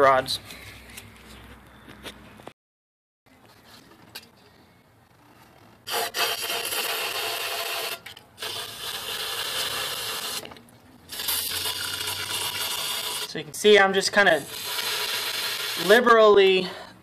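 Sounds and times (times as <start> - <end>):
aerosol can spraying: 14.5 - 15.9.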